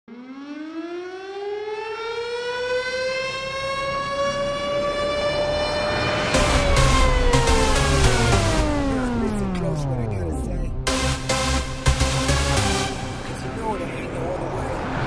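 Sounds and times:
air raid siren wail: 0.1s - 10.1s, 10.7s - 15.0s
electronic dance beat with bass: 6.4s - 13.4s.

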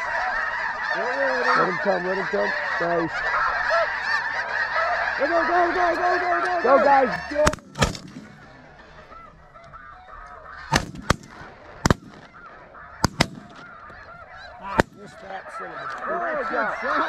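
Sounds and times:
geese honking: 0.0s - 17.0s
shotguns firing: 7.4s - 8.8s, 10.7s - 13.9s, 14.7s - 15.2s.

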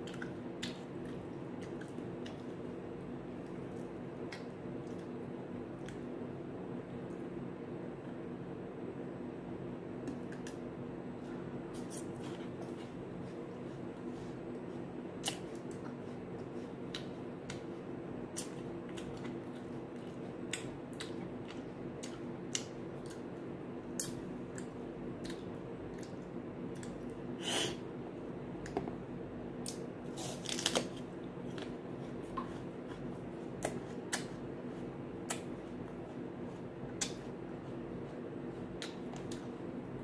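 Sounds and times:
steady low hum: 0.0s - 40.0s
crunching apple: 29.7s - 34.5s.

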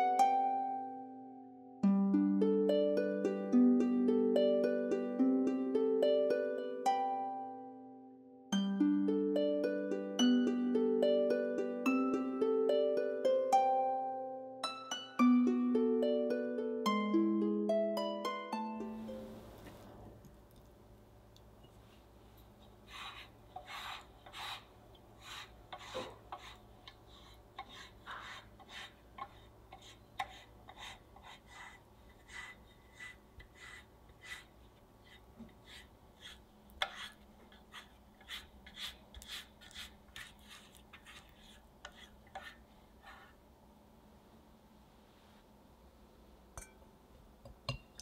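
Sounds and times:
pastry brush rubbing strokes: 21.8s - 43.4s.

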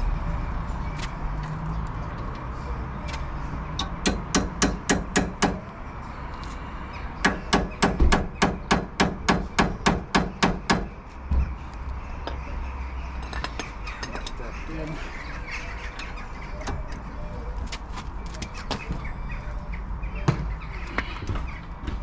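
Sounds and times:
hammer striking metal: 3.8s - 5.6s.

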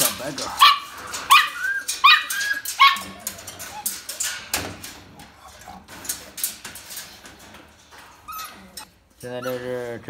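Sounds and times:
claws scratching wire kennel: 0.0s - 10.0s
puppy whining and yelping: 0.6s - 4.2s, 8.2s - 9.8s.

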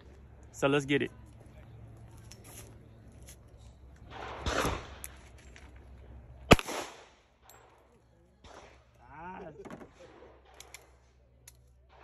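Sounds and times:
dull gunshot report: 4.1s - 5.0s, 6.5s - 7.2s
handgun sharp crack: 6.5s - 7.6s.

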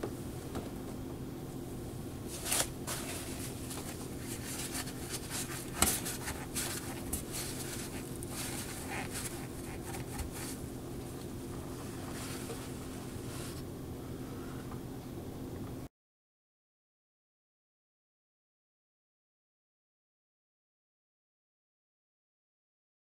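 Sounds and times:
steady low hum: 0.0s - 15.9s
paper towel rustling: 2.2s - 13.7s
small clicks and scrapes of hands: 2.4s - 10.6s.

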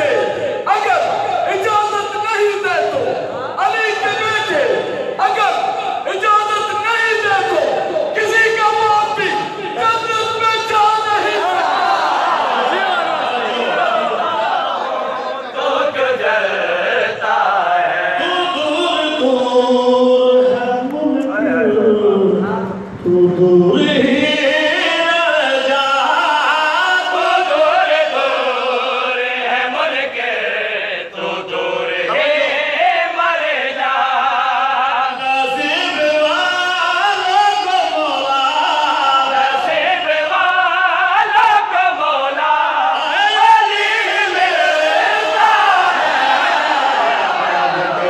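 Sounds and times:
man singing into microphone: 15.6s - 46.0s.

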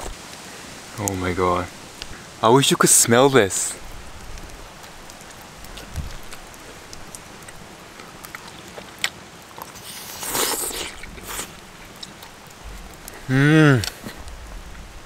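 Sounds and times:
quiet chewing: 4.2s - 14.9s.

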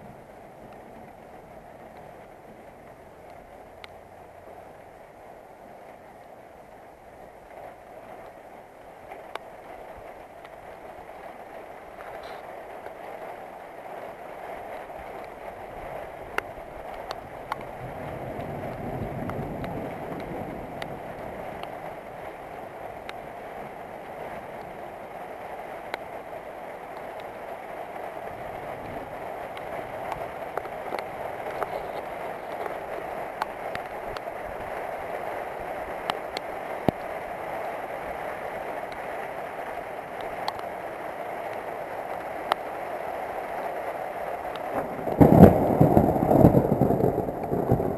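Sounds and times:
raindrops tapping nearby: 0.0s - 47.9s
steady rain falling: 0.0s - 47.9s
distant thunder rumble: 14.8s - 26.0s, 27.9s - 37.2s, 43.6s - 47.9s.

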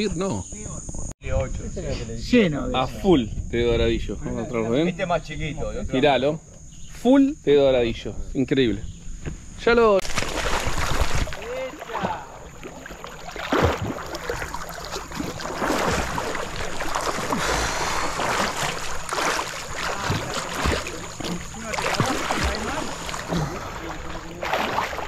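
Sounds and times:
water splashing around kayak: 10.0s - 25.0s.

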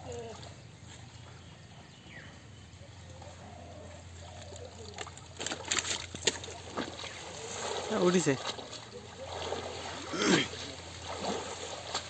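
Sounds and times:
water trickling and dripping: 4.1s - 12.0s.

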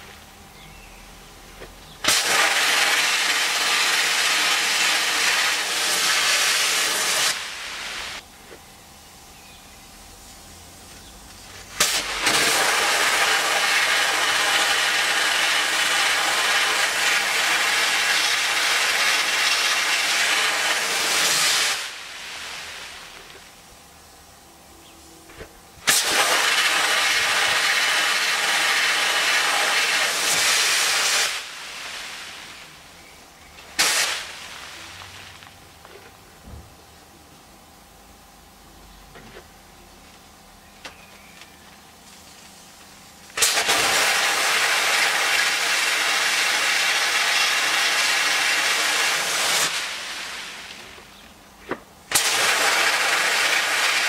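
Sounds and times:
sandblaster hissing: 2.0s - 8.2s, 10.0s - 24.2s, 24.9s - 36.0s, 42.0s - 51.4s, 52.0s - 54.0s.

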